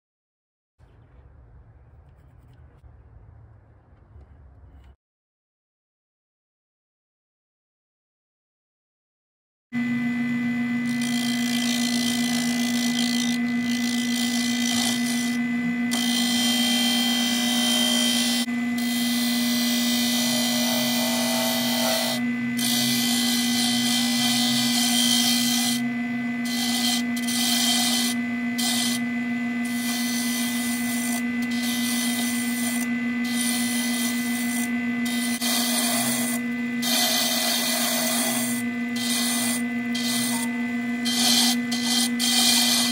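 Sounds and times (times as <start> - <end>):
tool scraping spinning wood: 9.8 - 42.9
wood lathe motor hum: 9.8 - 42.9.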